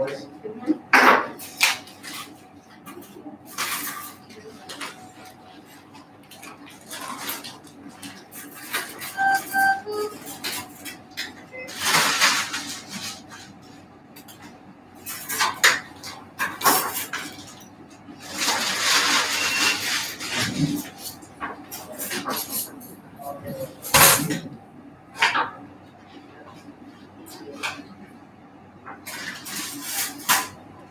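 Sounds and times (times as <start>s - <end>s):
short electronic beeps: 9.1s - 10.2s.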